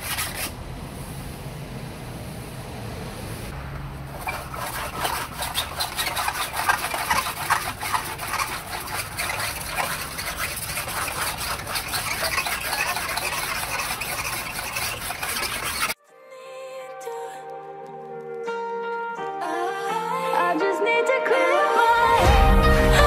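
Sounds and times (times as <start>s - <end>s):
razor blade scraping resin: 0.0s - 0.6s, 4.1s - 16.0s.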